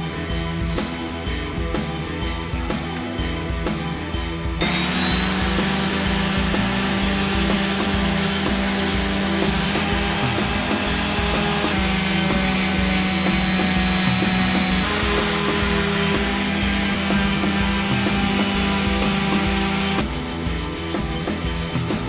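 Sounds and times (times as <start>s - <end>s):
orbital sander running: 4.6s - 20.7s.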